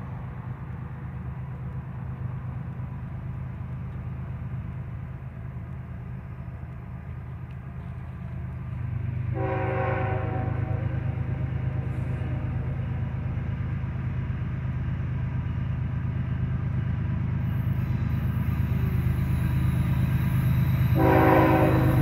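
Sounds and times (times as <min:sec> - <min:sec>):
freight train rumbling: 0:00.0 - 0:22.0
locomotive horn chord: 0:09.3 - 0:12.9, 0:20.9 - 0:22.0.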